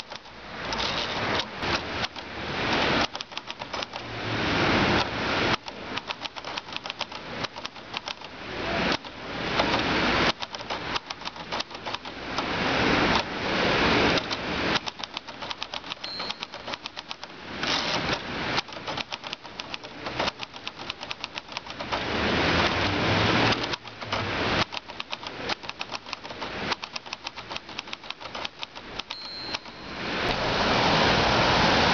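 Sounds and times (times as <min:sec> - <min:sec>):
typewriter keys clacking: 0:00.0 - 0:04.1, 0:05.0 - 0:08.3, 0:08.9 - 0:12.5, 0:14.1 - 0:29.9
rushing noise: 0:08.0 - 0:28.4, 0:29.0 - 0:31.9
typewriter bell ring: 0:15.2 - 0:17.9, 0:27.8 - 0:30.1.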